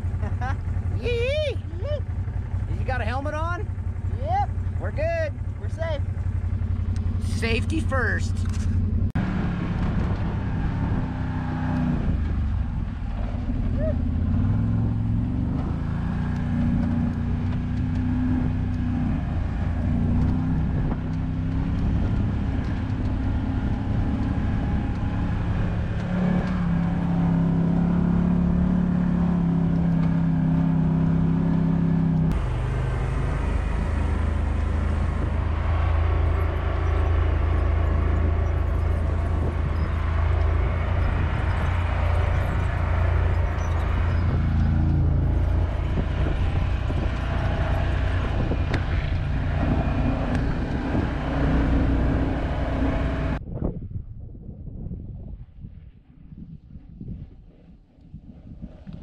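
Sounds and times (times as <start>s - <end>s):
utility vehicle engine: 0.0s - 53.4s
wind noise: 8.4s - 28.2s, 32.3s - 59.0s.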